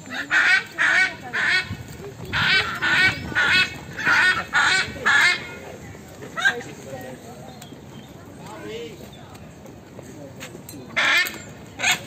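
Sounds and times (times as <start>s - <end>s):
macaws squawking: 0.1s - 5.5s.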